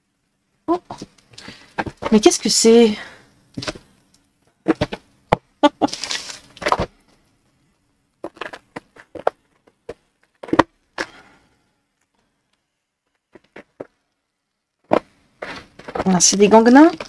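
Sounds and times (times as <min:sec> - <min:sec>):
plastic bubble mailer crinkling: 0:05.7 - 0:07.2.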